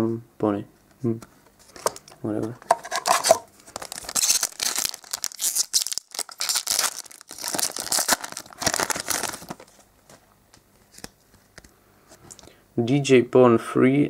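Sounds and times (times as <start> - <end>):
handling of cards: 1.2 - 12.5
foil wrapper crinkling and tearing: 3.0 - 9.8.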